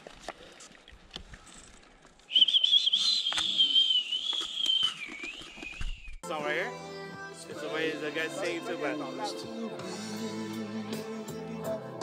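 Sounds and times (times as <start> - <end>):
long high whistle: 2.3 - 6.2.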